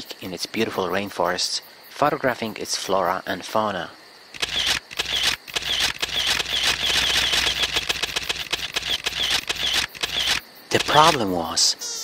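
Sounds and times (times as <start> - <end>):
high chirps and clicking calls: 4.3 - 11.4.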